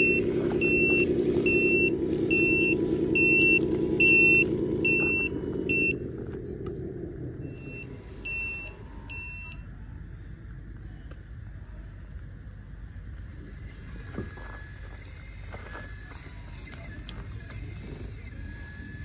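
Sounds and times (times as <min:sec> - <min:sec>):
reversing warning beeper: 0:00.0 - 0:06.1, 0:07.3 - 0:09.7, 0:13.1 - 0:19.0
toy diesel engine sound: 0:00.0 - 0:10.3, 0:12.6 - 0:19.0.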